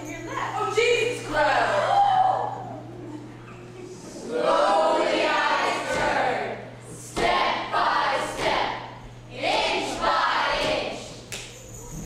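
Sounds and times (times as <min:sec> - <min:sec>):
steady low hum: 0:00.0 - 0:12.0
voices singing together: 0:04.0 - 0:11.3.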